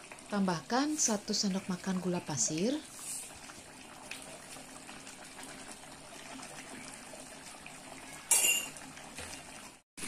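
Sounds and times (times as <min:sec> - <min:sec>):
sauce simmering in a wok: 0:00.0 - 0:09.8
metal utensil clinking on wok: 0:08.3 - 0:08.8.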